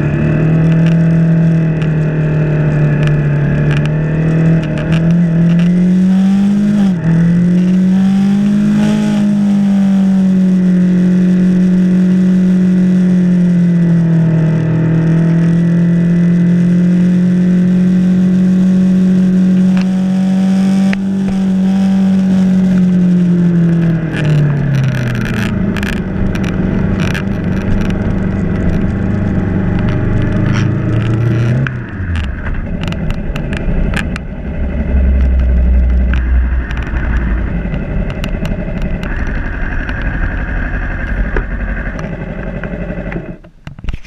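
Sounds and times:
motorcycle engine running: 0.0s - 44.0s
wind noise: 19.6s - 41.9s
sharp clicks: 23.7s - 40.2s.

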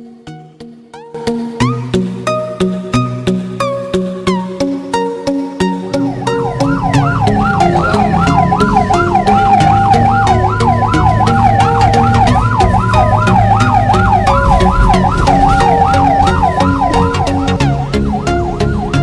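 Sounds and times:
ambulance siren yelping: 5.2s - 19.0s
steady two-tone siren note: 5.7s - 19.0s
low vehicle rumble: 5.8s - 19.0s.

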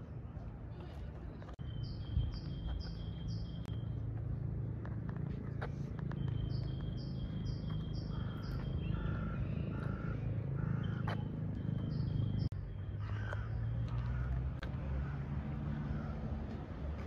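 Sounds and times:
low outdoor rumble: 0.0s - 17.0s
songbird singing: 1.4s - 4.1s, 5.7s - 14.4s.

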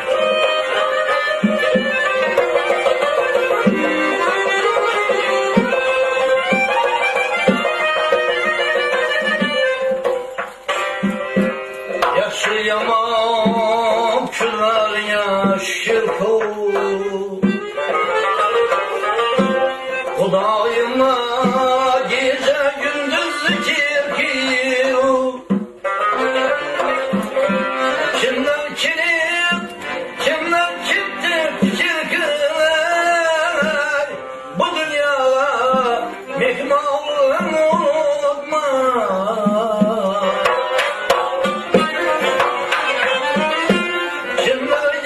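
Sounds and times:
frame drum beat: 0.0s - 45.0s
plucked lute: 0.0s - 45.0s
man singing folk song: 11.6s - 45.0s.

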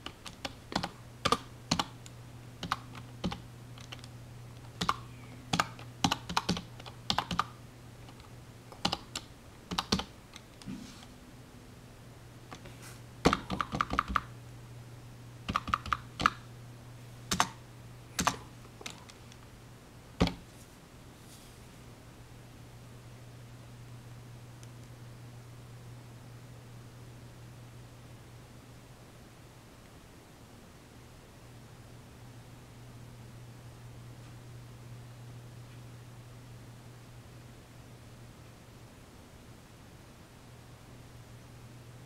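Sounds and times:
typing on computer keyboard: 0.0s - 2.0s, 2.6s - 4.1s, 4.7s - 10.5s, 13.2s - 14.3s, 15.5s - 16.4s, 17.3s - 17.6s, 18.2s - 19.2s
steady low hum: 0.0s - 42.0s.

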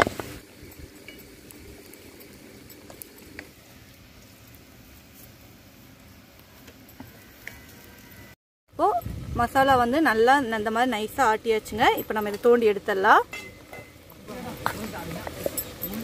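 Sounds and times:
light clinks: 11.6s - 12.7s, 13.3s - 16.0s.

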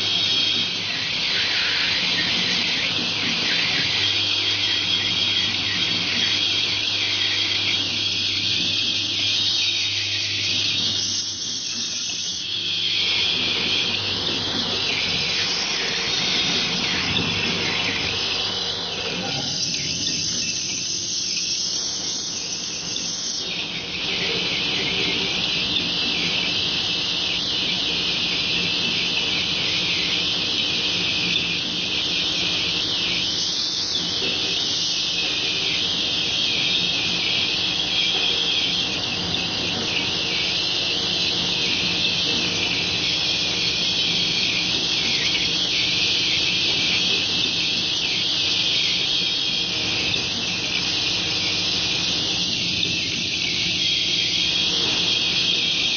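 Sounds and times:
low machine hum: 0.0s - 55.9s
pneumatic high hiss: 14.6s - 55.9s.

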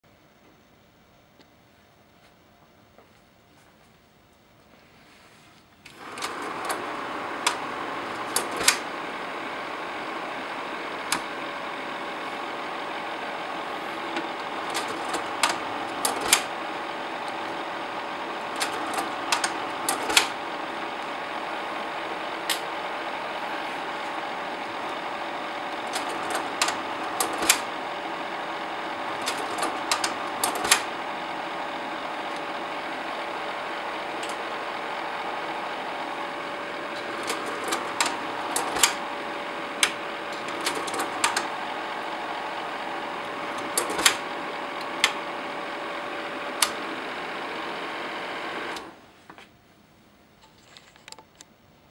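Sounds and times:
projector cooling fan humming: 0.0s - 50.6s
slide-change mechanism clicking: 5.8s - 32.6s, 33.5s - 45.3s, 46.5s - 47.0s.

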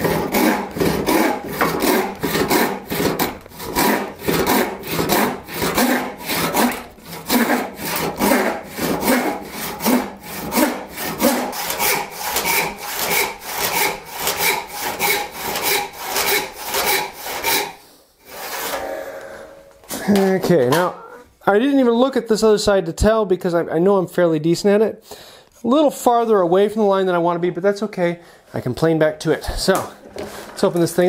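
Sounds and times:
hand saw cutting wood: 0.0s - 21.1s.

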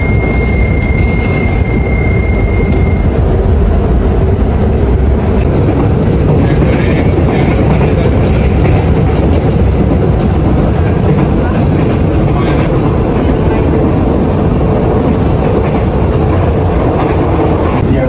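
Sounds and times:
door warning tone: 0.0s - 3.1s
train running rumble and rail noise: 0.0s - 18.0s.

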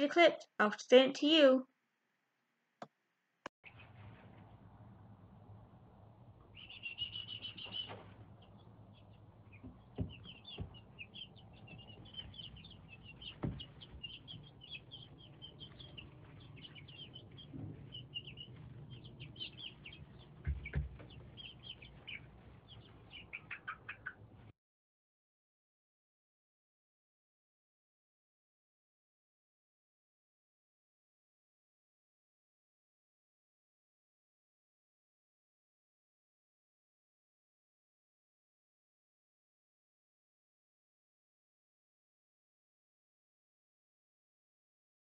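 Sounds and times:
chicks peeping: 6.4s - 24.5s.

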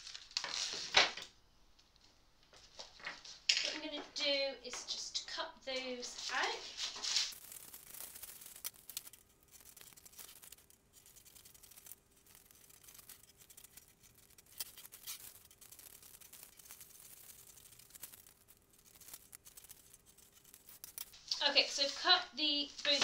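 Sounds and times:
paper rustling and crinkling: 0.0s - 1.3s, 5.7s - 23.0s
scissors cutting paper: 5.8s - 21.2s.

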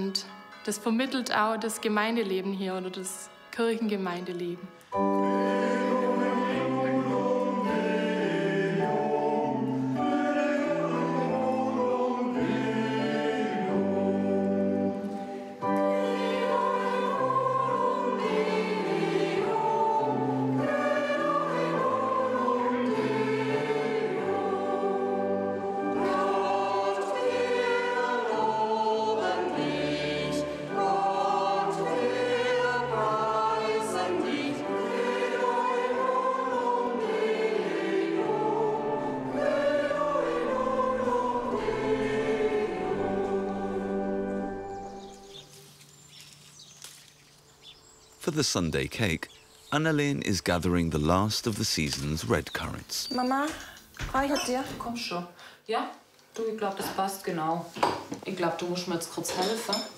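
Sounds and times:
electronic organ chords: 2.8s - 45.7s
choir singing a hymn: 3.7s - 46.1s.

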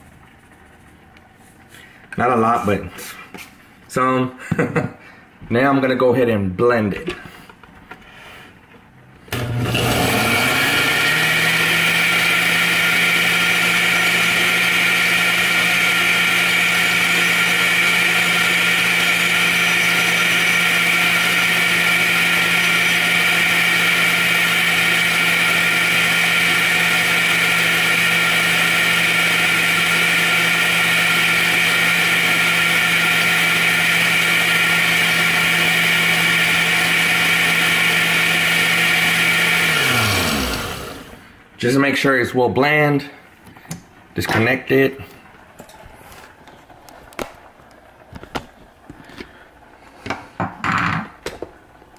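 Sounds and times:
blender running: 9.3s - 41.4s.

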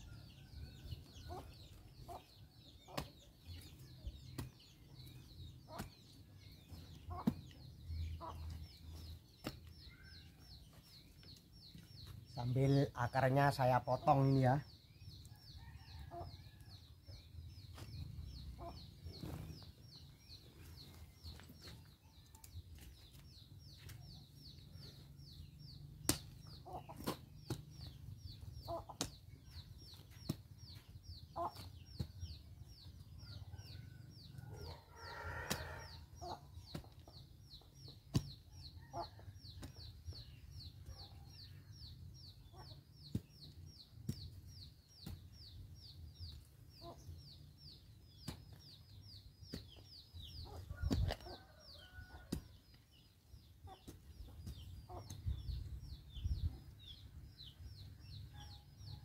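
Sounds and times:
chickens clucking: 0.8s - 12.2s, 20.5s - 41.2s, 41.9s - 52.6s, 53.5s - 56.8s.

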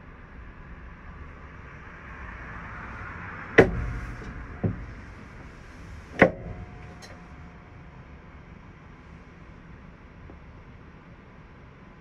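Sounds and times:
tram rolling rumble: 0.0s - 12.0s
wheels clunking over rail joints: 2.9s - 8.6s.

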